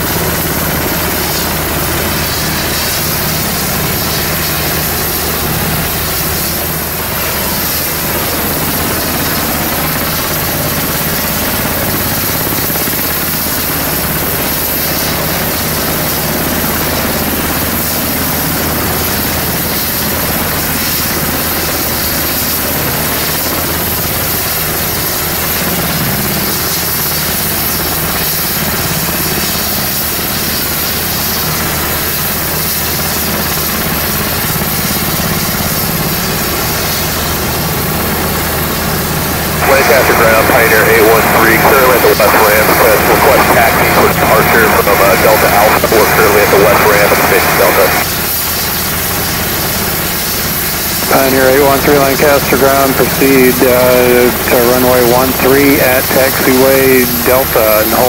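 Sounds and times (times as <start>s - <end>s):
helicopter engines and rotor: 0.0s - 58.0s
thin high whine: 39.6s - 48.9s.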